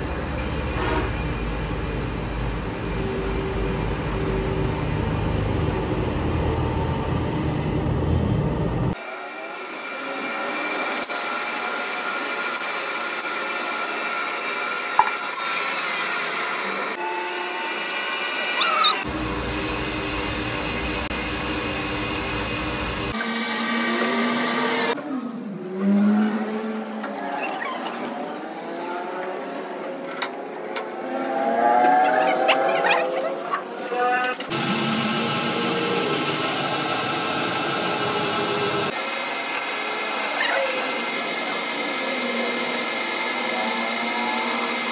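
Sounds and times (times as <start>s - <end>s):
metal lathe running: 8.9s - 25.0s, 33.8s - 44.9s.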